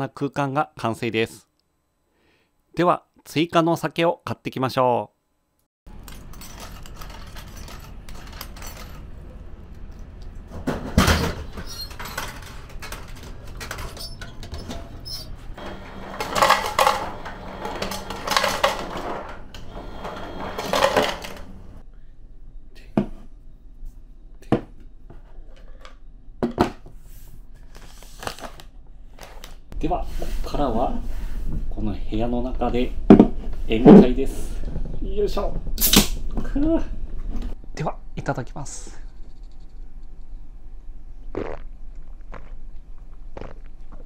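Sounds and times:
steady machine hum: 5.2 - 22.8
ice cubes clattering into cup: 15.6 - 19.3, 20.3 - 21.6.

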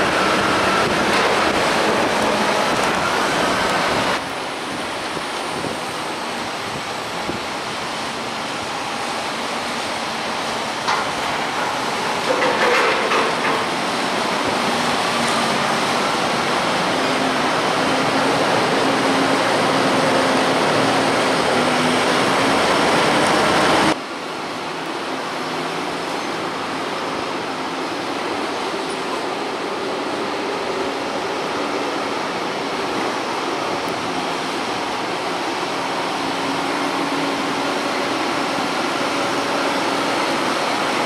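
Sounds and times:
tractor diesel engine: 0.0 - 24.0.

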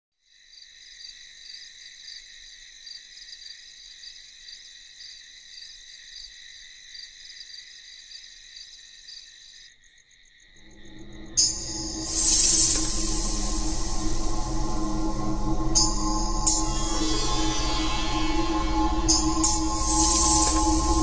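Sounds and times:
crickets chirring: 0.2 - 21.0.

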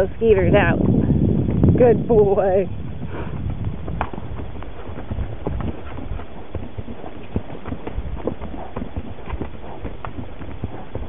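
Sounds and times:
low steady rumble: 0.0 - 11.0
hooves clip-clopping on dirt: 2.7 - 11.0.

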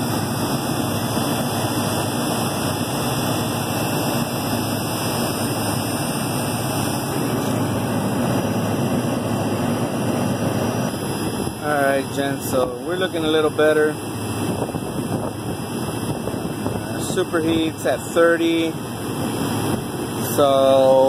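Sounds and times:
condensing unit running: 0.0 - 21.0.

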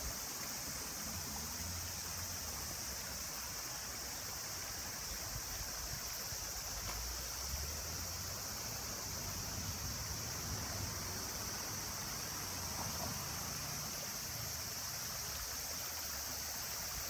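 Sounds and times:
high-pitched hiss: 0.0 - 17.0
stream rushing over rocks: 0.0 - 17.0.

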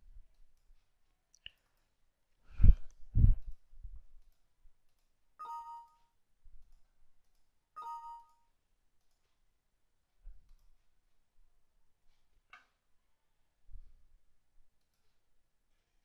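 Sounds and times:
dull low thumps: 2.5 - 4.0
computer message-box chimes: 5.4 - 6.1, 7.8 - 8.5.

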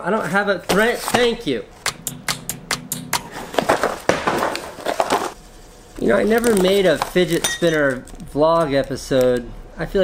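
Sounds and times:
low hum: 1.7 - 7.1.

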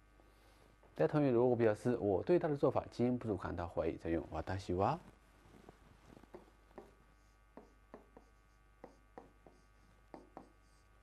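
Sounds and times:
low mains hum: 0.0 - 11.0
pen tapping on screen: 6.3 - 7.0, 7.6 - 10.6.

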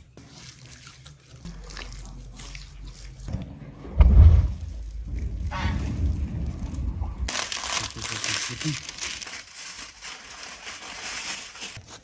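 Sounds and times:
wood fire rumbling: 3.3 - 9.2
aluminium foil crumpling: 7.3 - 12.0.

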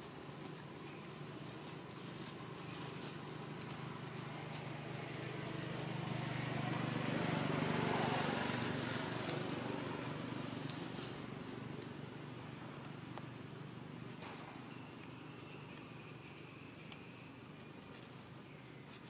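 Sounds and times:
motor vehicle passing by: 3.7 - 13.0.

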